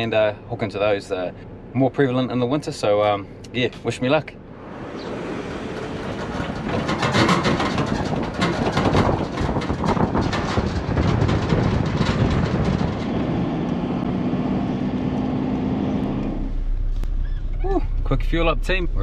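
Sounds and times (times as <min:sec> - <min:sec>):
towing vehicle drone: 0:00.0 - 0:19.0
wind and road rush: 0:03.3 - 0:19.0
boat trailer rattling and knocking: 0:04.9 - 0:13.6.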